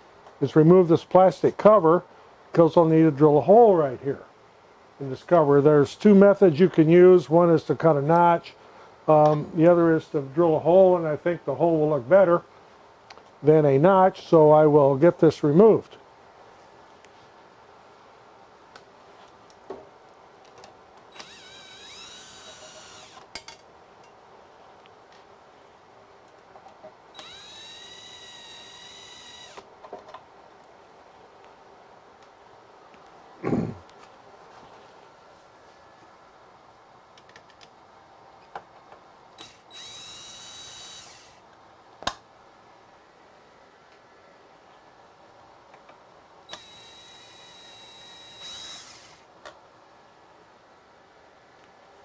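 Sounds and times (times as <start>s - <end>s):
cordless drill spinning: 21.1s - 23.2s, 27.2s - 29.7s, 39.4s - 41.4s, 46.5s - 49.3s.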